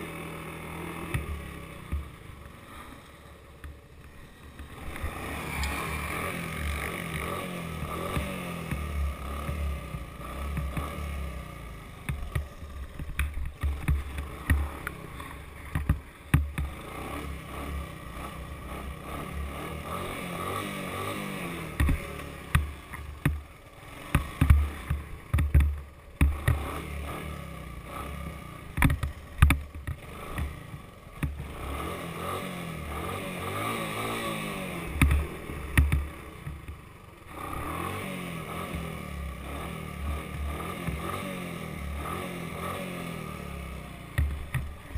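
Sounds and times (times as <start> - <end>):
four-stroke engine revving: 0.0 - 44.9
knocks and thumps from bumps: 12.0 - 14.7, 15.7 - 16.8, 21.8 - 23.4, 24.1 - 26.7, 28.7 - 31.5, 35.0 - 36.8.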